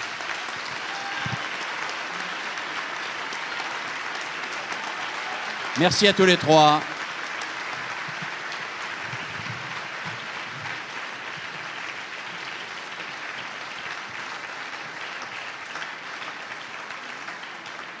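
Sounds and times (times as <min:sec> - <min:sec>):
audience applauding: 0:00.0 - 0:18.0.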